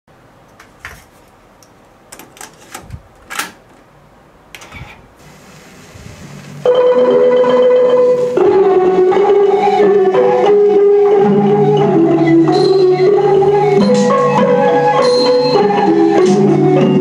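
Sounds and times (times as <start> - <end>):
cassette deck clicks and clacks: 2.1 - 3.9
instrumental music with held notes: 6.6 - 17.0.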